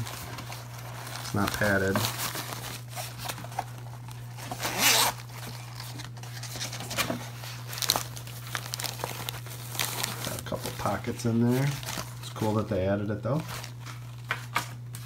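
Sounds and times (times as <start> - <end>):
steady low hum: 0.0 - 15.0
zipper rasping open: 4.6 - 5.2.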